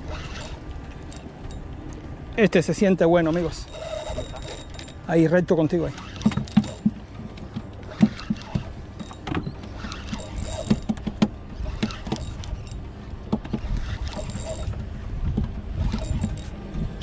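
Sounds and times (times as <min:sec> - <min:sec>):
fishing reel being cranked: 0:00.0 - 0:12.9, 0:13.5 - 0:17.0
tackle clicking and knocking: 0:05.9 - 0:17.0.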